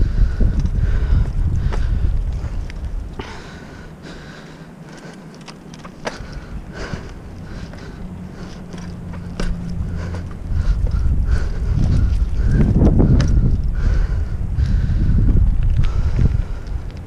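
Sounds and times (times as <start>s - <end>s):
wind on microphone: 0.0s - 3.9s, 6.0s - 17.0s
bike tyres rumbling on asphalt: 0.0s - 17.0s
sharp clicks from bike: 4.8s - 17.0s.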